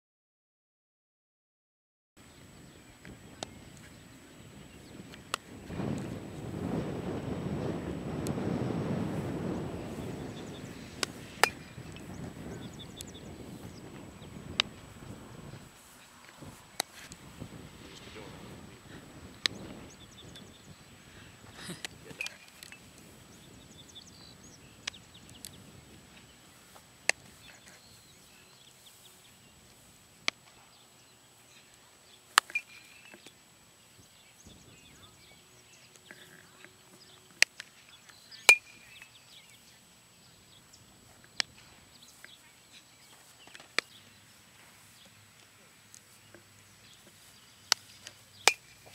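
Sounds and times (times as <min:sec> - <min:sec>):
baseball being hit and caught: 0:11.0 - 0:12.4, 0:47.7 - 0:48.9.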